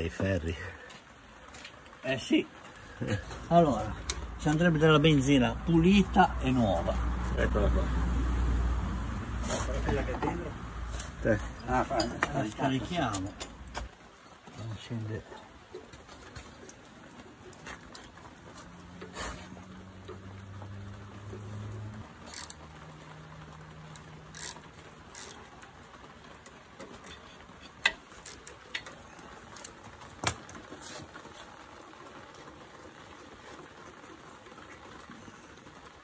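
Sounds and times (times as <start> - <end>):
wrench and metal fittings clicking: 24.0 - 25.4, 27.1 - 29.0.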